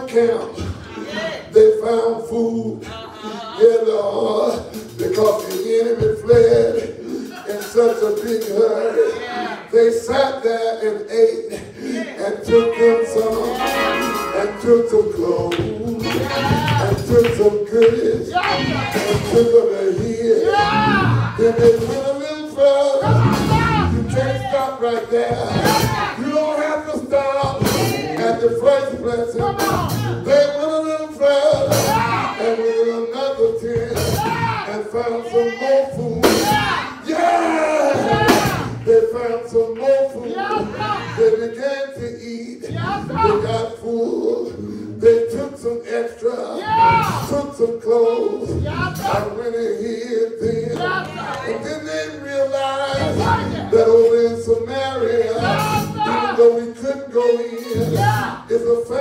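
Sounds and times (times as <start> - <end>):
preacher chanting a sermon: 0.0 - 59.0
background music: 12.2 - 59.0
church music: 12.5 - 21.5, 49.2 - 59.0.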